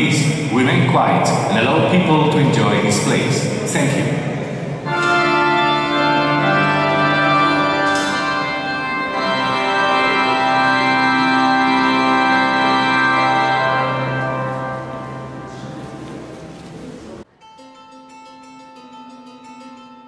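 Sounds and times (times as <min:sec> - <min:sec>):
organ playing sustained chords: 0:00.0 - 0:17.2.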